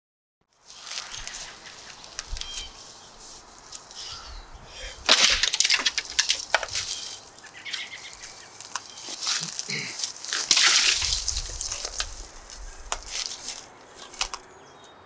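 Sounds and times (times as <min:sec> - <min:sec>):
sharp woody crack: 0:05.0 - 0:14.5
axe chopping into sapling: 0:05.1 - 0:07.0, 0:10.3 - 0:12.2.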